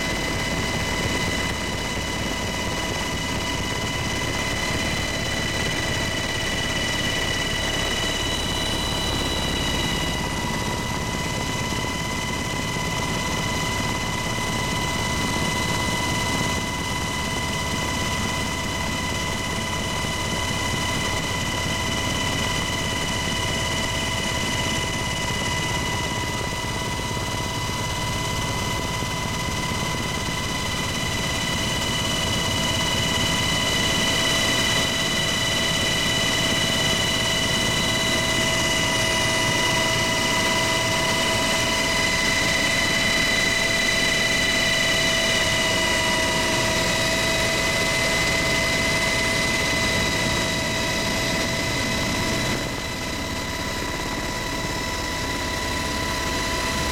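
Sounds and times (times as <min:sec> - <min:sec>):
helicopter rotor and engine rush: 0:00.0 - 0:56.9.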